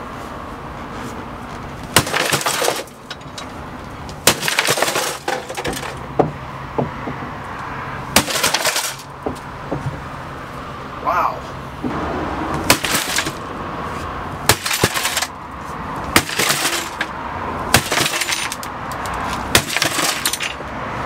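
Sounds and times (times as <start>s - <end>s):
sledgehammer striking sheet metal: 2.0s - 2.9s, 4.2s - 6.0s, 8.2s - 9.1s, 11.8s - 13.5s, 14.4s - 15.4s, 16.1s - 17.1s, 17.7s - 18.6s, 19.5s - 20.5s
metal rattling: 2.0s - 6.4s, 8.2s - 10.0s, 12.6s - 13.5s, 14.4s - 15.4s, 16.1s - 20.6s
small knocks: 2.2s - 7.3s, 8.2s - 10.1s.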